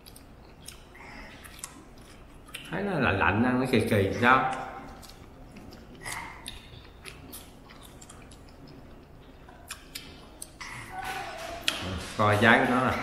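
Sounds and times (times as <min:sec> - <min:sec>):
chewing shrimp: 0:00.0 - 0:02.8, 0:04.2 - 0:12.1
wet mouth clicks and smacks: 0:04.5 - 0:10.7.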